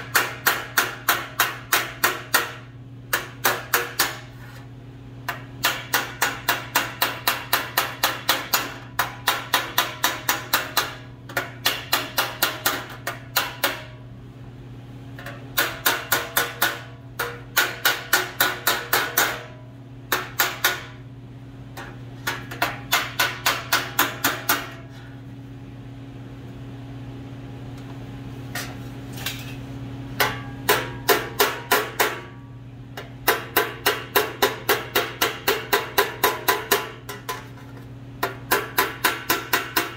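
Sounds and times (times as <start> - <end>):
hammer ringing on metal: 15.6 - 21.0, 30.2 - 32.4, 33.2 - 37.1.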